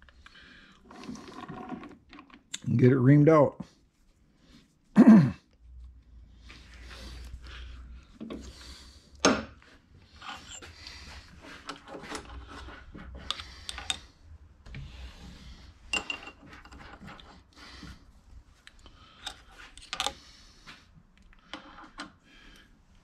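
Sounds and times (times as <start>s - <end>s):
person grunting: 5.0s - 5.4s
metal tools clinking and scraping: 10.2s - 10.8s, 15.9s - 17.3s.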